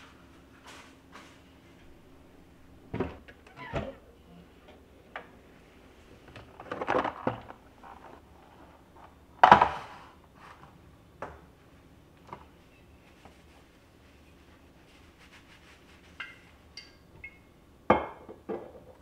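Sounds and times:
cabinet door opening: 2.9 - 4.0.

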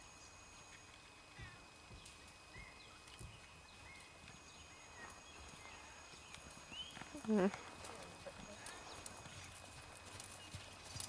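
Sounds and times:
faint bird chirps: 0.1 - 7.6, 8.2 - 10.9
muffled hoofbeats on sand: 3.2 - 11.0.

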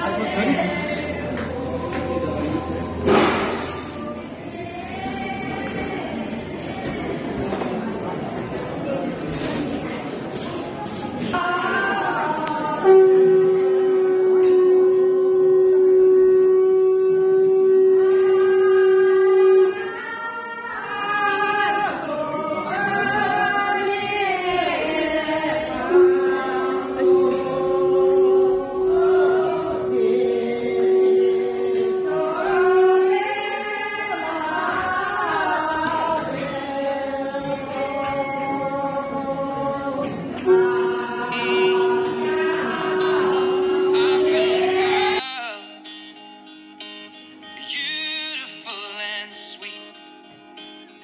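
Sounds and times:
group of voices singing: 0.0 - 8.5, 9.3 - 51.0
wind instrument steady note: 12.7 - 20.1, 25.8 - 33.5, 40.4 - 47.6.

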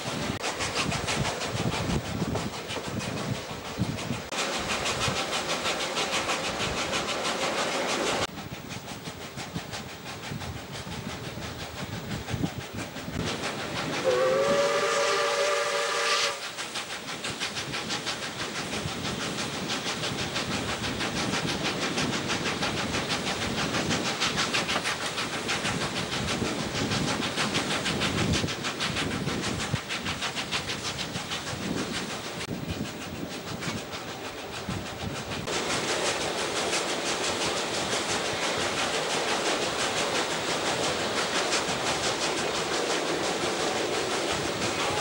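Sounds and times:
steam train running: 0.0 - 45.0
steam whistle blast: 14.0 - 16.6.

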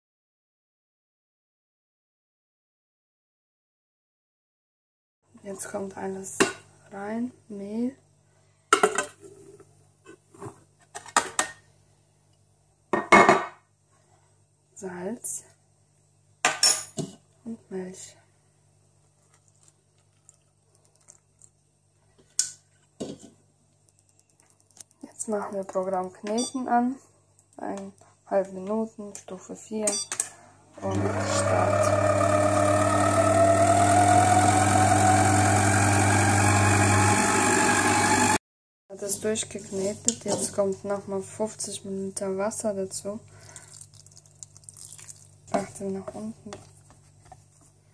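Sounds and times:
kitchen machine motor whining: 30.8 - 38.4.

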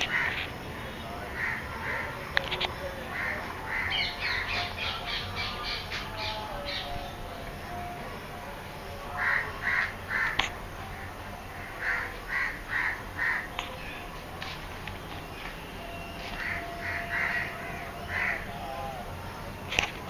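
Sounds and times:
crows cawing: 0.0 - 0.5, 1.3 - 2.2, 3.1 - 5.8, 9.2 - 10.5, 11.5 - 13.5, 16.3 - 19.1.

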